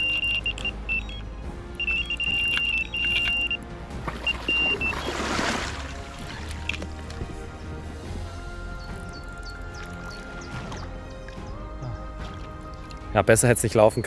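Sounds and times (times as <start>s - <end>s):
high electronic alarm beeps: 0.0s - 1.2s, 1.8s - 3.6s, 4.2s - 5.2s
water splash: 3.0s - 7.2s.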